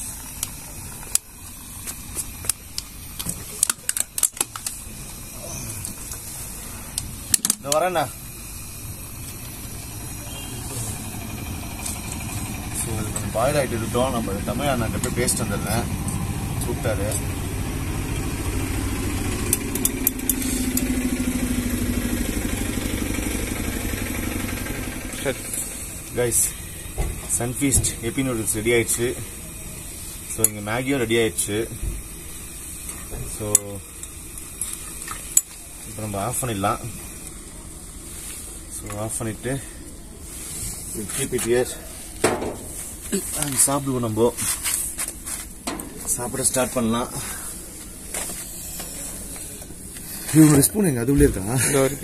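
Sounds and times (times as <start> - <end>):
plastic bottle crackling: 1.9 - 4.8
steady low rush: 4.7 - 34.4, 35.6 - 52.0.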